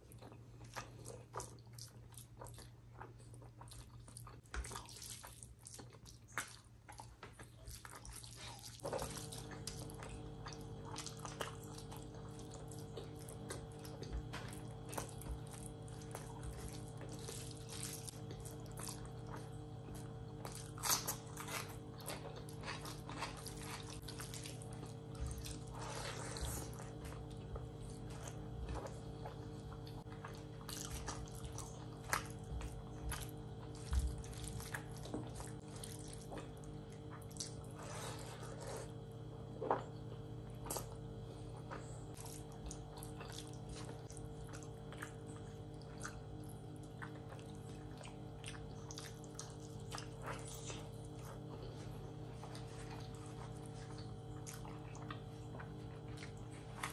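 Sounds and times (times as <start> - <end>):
steady low hum: 0.0 - 56.9
mouth chewing: 39.6 - 56.9.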